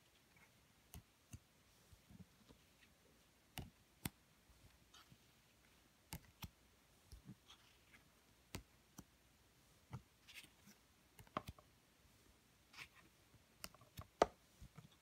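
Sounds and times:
cards clicking and tapping: 0:11.1 - 0:11.7, 0:13.6 - 0:15.0.

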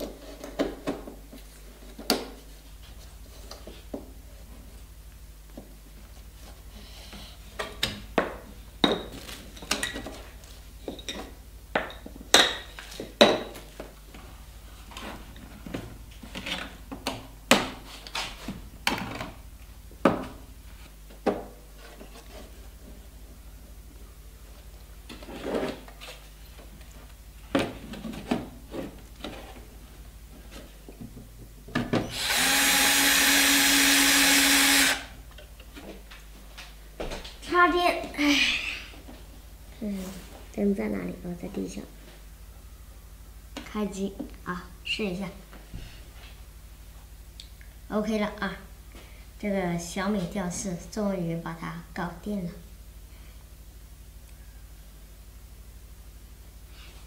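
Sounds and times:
cordless drill running: 0:32.1 - 0:35.1.

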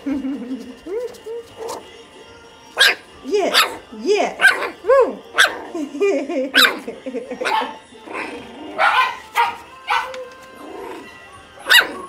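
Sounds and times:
puppy whines: 0:00.7 - 0:01.9, 0:09.9 - 0:12.0
puppies yapping: 0:02.8 - 0:12.0.

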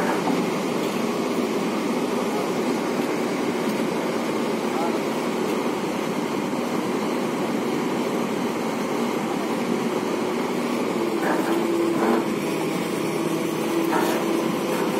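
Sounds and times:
excavator diesel engine running: 0:00.0 - 0:14.9.

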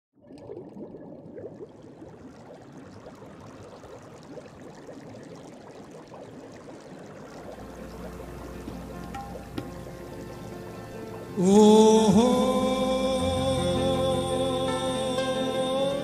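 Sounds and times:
water pouring and bubbling: 0:00.2 - 0:11.4
music: 0:07.5 - 0:16.0.

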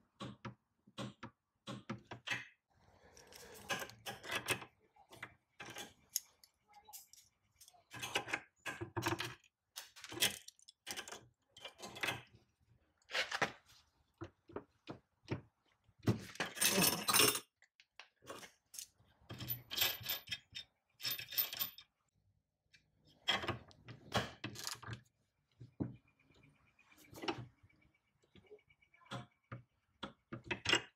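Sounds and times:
metal tools clinking and clanking: 0:03.2 - 0:04.7, 0:05.6 - 0:08.3, 0:09.1 - 0:12.3, 0:16.3 - 0:17.5, 0:18.3 - 0:21.9.

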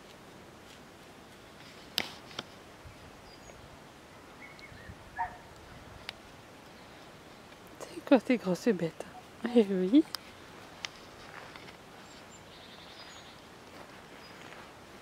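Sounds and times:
faint background hiss: 0:00.0 - 0:15.0
high animal call: 0:05.2 - 0:05.5.

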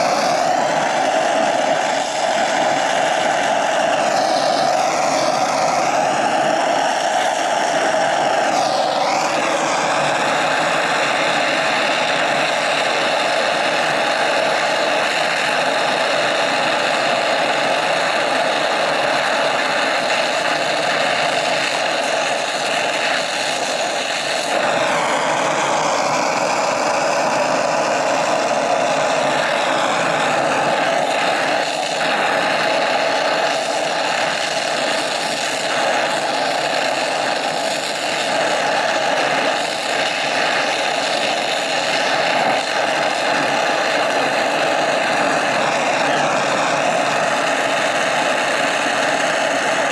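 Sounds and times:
torch flame hissing: 0:00.0 - 0:49.9.

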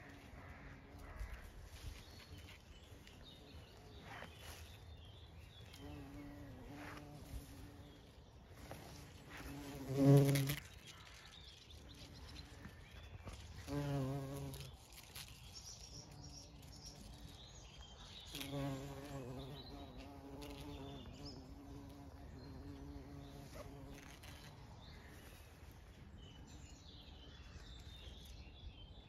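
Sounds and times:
bumblebee buzzing: 0:05.7 - 0:10.7, 0:13.6 - 0:17.4, 0:18.2 - 0:24.5.

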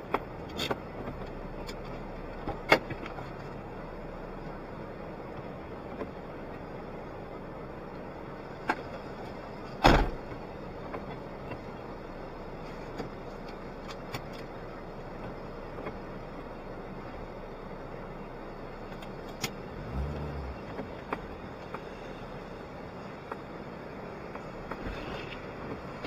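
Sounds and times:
car door slamming shut: 0:09.8 - 0:10.2.

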